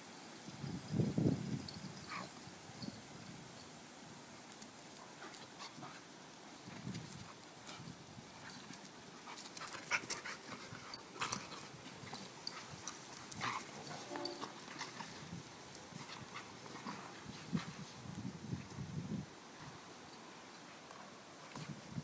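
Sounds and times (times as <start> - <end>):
dogs scuffling on grass: 4.2 - 22.0
dogs panting: 7.2 - 17.9.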